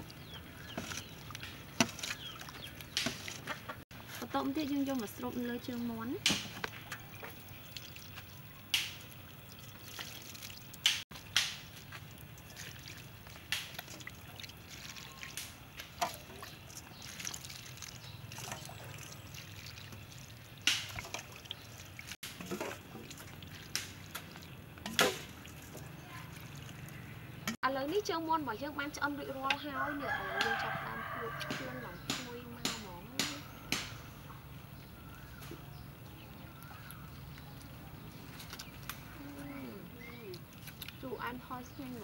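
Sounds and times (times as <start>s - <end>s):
sauce dripping and trickling: 0.0s - 3.4s, 6.6s - 27.5s, 36.0s - 42.0s.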